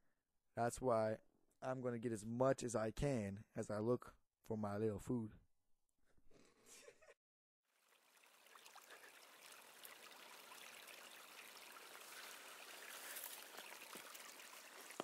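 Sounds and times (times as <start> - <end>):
creek trickling over stones: 7.7 - 15.0.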